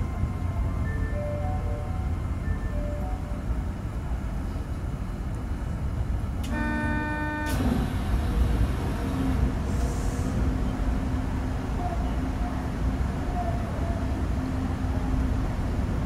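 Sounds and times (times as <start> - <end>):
train rumbling along guideway: 0.0 - 16.0
horn-like tone: 6.5 - 7.7.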